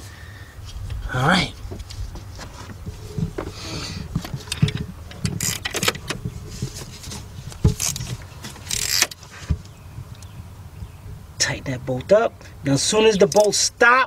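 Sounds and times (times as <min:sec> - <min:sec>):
hand tool metal clicks and rasps: 0:04.4 - 0:06.1, 0:07.8 - 0:09.2, 0:13.3 - 0:13.6.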